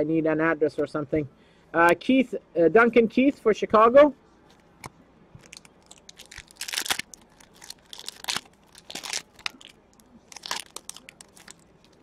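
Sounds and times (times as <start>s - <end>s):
card pack wrappers crinkling: 5.4s - 12.0s.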